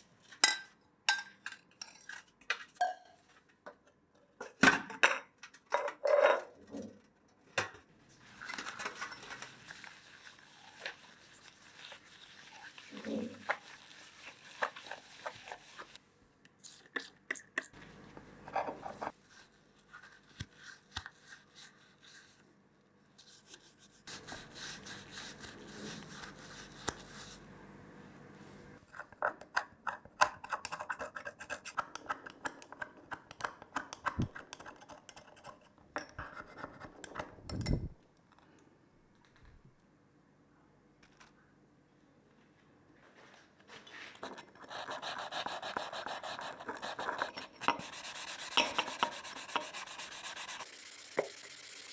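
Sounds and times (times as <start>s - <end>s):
scrubbing pad scratching brass: 9.8s - 16.0s, 44.6s - 51.9s.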